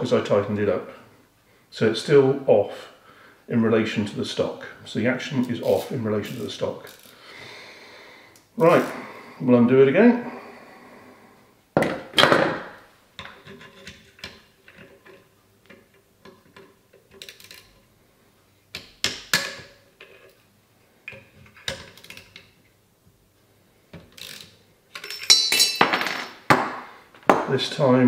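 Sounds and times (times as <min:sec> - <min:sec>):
clicks and knocks of metal tools: 0:24.1 - 0:26.4.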